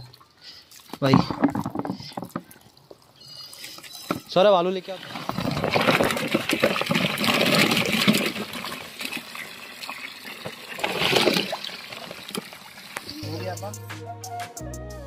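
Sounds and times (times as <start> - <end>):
hose water running into tub: 0.8 - 13.3
potatoes splashing into water: 4.8 - 13.0.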